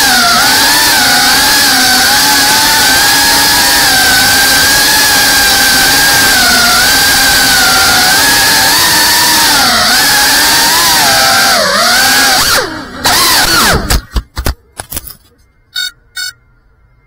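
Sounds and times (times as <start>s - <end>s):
drone motors whining: 0.0s - 14.4s
short electronic beeps: 15.4s - 16.6s.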